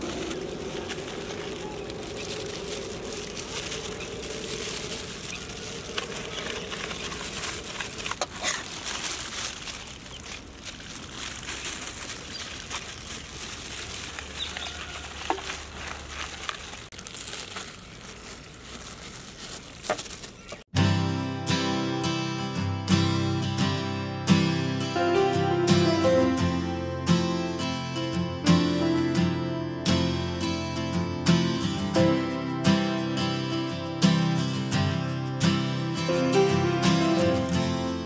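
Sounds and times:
foil bags crinkling: 0.0 - 20.7, 35.7 - 38.0.

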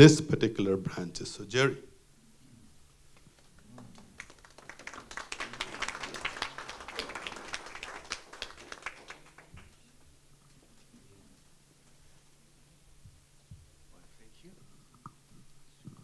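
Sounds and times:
audience applauding: 3.3 - 10.0.

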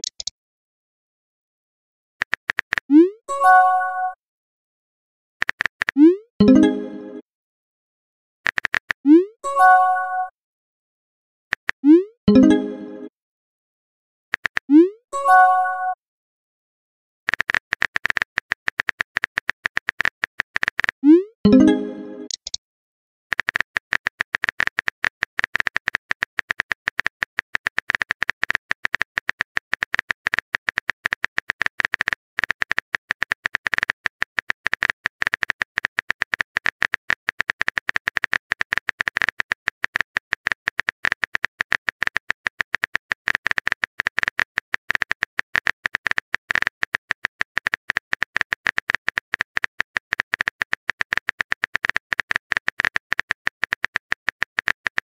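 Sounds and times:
keyboard typing clicks: 0.0 - 0.3, 2.2 - 3.6, 5.4 - 7.2, 8.5 - 9.7, 14.4 - 15.4, 17.3 - 22.6, 23.3 - 55.0.

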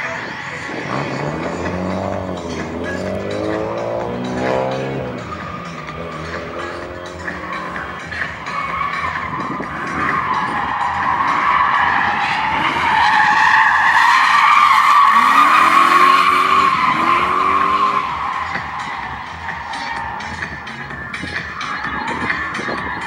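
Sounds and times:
car engine revving: 0.6 - 23.0
tyres squealing: 4.8 - 23.0.

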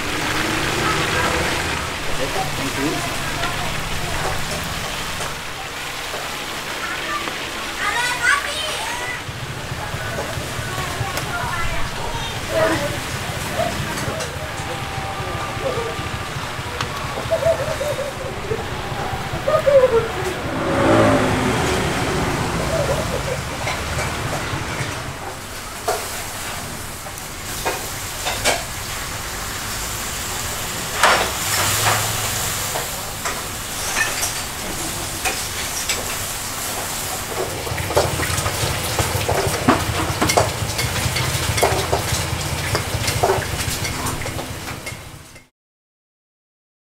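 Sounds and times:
oil sizzling in a wok: 0.0 - 13.8, 24.8 - 45.5.

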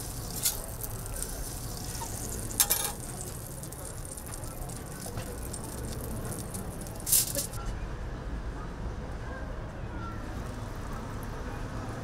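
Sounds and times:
utensils clattering: 2.0 - 3.1.

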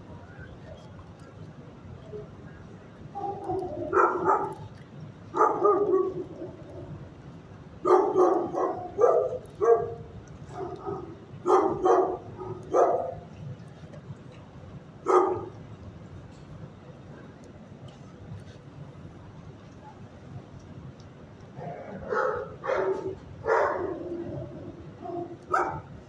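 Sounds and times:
dogs barking: 3.2 - 4.7, 5.3 - 6.9, 7.8 - 13.3, 15.0 - 15.6, 21.6 - 25.9.

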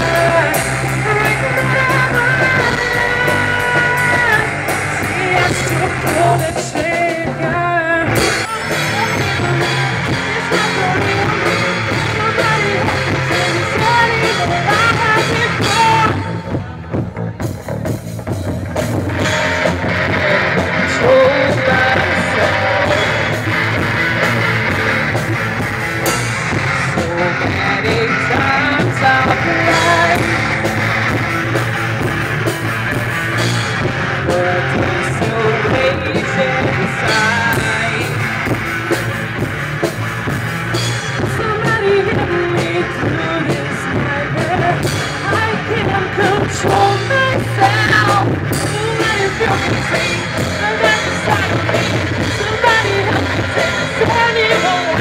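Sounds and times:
person singing into a microphone: 0.0 - 16.8, 19.1 - 25.0, 26.5 - 31.1, 33.8 - 38.6, 41.1 - 55.0
bass guitar: 0.0 - 55.0
drum kit: 0.0 - 55.0
electric guitar: 0.0 - 55.0.

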